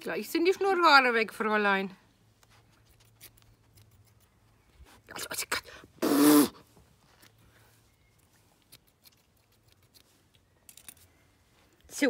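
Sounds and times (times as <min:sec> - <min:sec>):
grooming scissors snipping fur: 0:02.8 - 0:04.4, 0:08.6 - 0:11.0.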